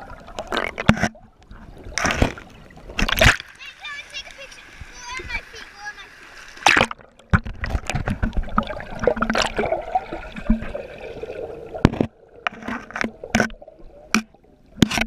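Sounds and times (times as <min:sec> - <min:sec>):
underwater creek gurgling: 0:00.0 - 0:15.0
sharp underwater knocks and clicks: 0:00.3 - 0:03.6, 0:06.6 - 0:09.7, 0:10.4 - 0:10.8, 0:11.8 - 0:15.0.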